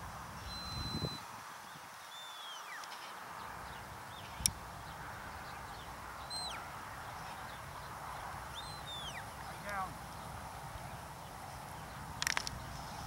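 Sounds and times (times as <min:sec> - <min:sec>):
high shepherd's whistles: 0:00.4 - 0:01.2
short falling whistles: 0:02.1 - 0:02.8.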